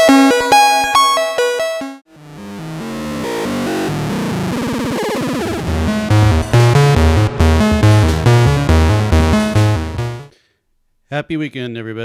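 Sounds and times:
pulsing synth bass notes: 1.8 - 10.3
dense buzzing synth tone: 2.1 - 10.3.

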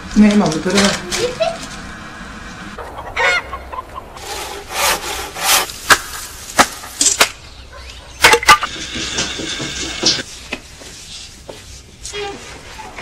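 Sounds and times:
saw rasping through wood: 4.2 - 5.7
hand tool chopping wood: 4.7 - 7.4.

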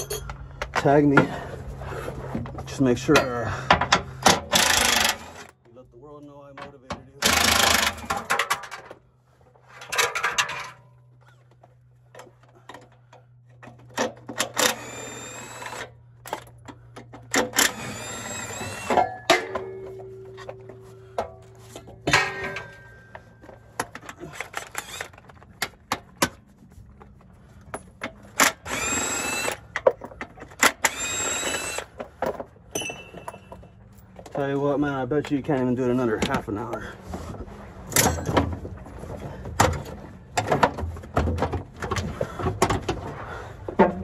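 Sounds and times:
impact wrench whining: 3.5 - 5.6, 7.2 - 8.7, 12.5 - 25.9, 27.8 - 33.6.

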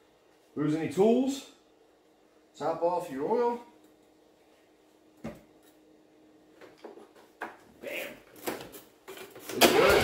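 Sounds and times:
knocks and clunks on mower: 9.5 - 10.0.

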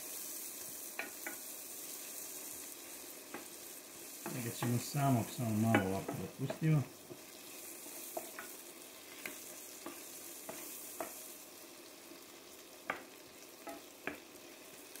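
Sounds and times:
onion sizzling in oil: 0.0 - 15.0
wooden spoon knocking on pot: 4.2 - 4.8, 5.6 - 7.2, 12.9 - 14.3.

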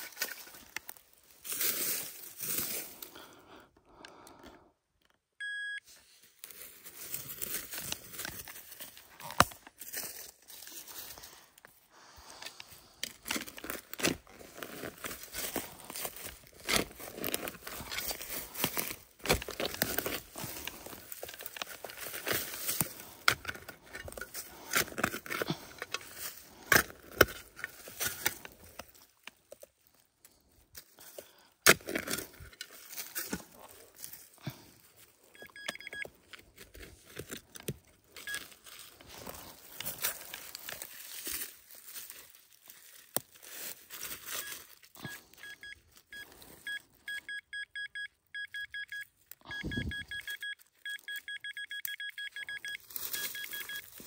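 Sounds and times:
short electronic beeping: 5.4 - 5.8, 45.1 - 53.8
rustling and scraping: 12.4 - 29.8
fast-pulsing beep: 46.7 - 53.8.

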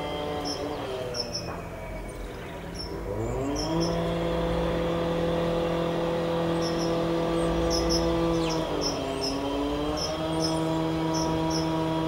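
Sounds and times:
engine hum: 0.0 - 12.0
high bird chirps: 0.4 - 4.2, 6.5 - 11.8.

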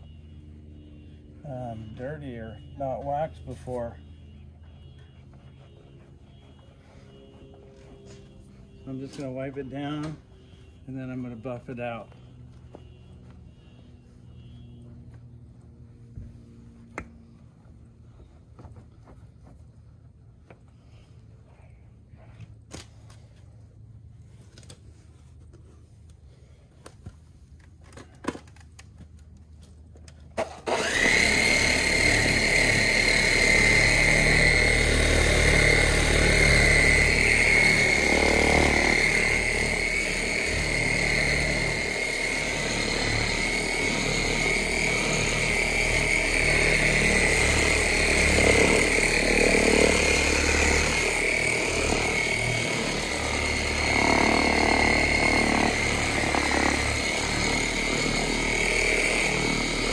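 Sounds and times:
electric buffer whining: 30.4 - 59.9.

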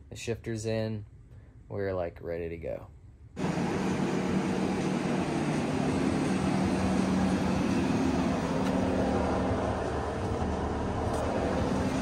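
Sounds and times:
machine running steadily: 3.3 - 12.0.

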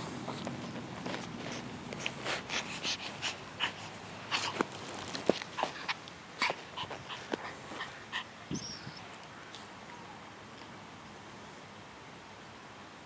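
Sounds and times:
dog snuffling: 0.0 - 8.0
rustling and clicks: 4.4 - 7.5.

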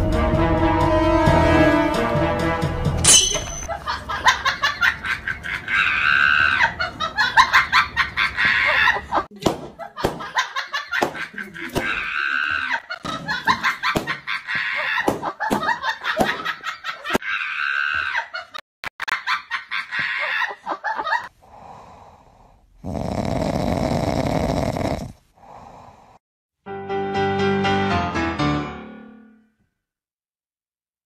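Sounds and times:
bursts of laughter: 3.7 - 21.3.

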